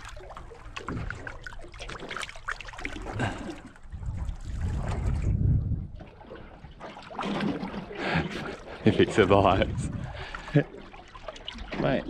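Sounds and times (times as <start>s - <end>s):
water splashing and trickling: 0.0s - 12.0s
low rumble: 3.9s - 6.2s, 9.2s - 10.6s.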